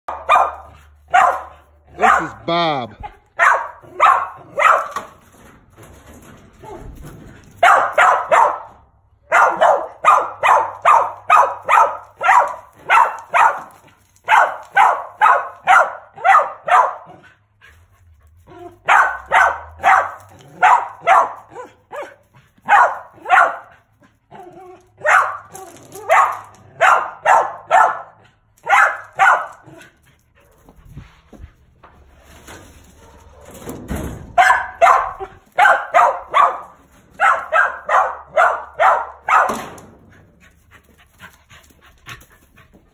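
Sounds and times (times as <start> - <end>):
dog barking sharply: 0.1 - 2.4, 3.0 - 5.1, 7.6 - 17.2, 18.8 - 23.8, 25.0 - 29.6, 34.4 - 39.6.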